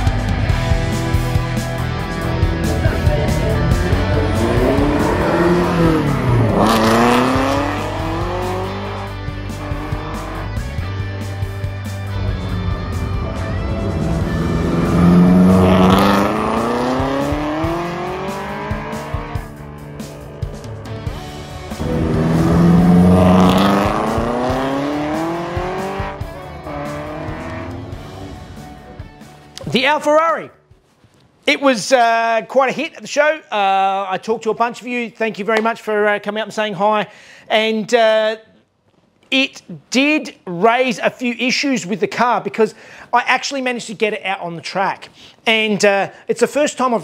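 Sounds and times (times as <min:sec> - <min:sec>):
race car engine passing: 0:02.5 - 0:10.6, 0:11.9 - 0:28.9.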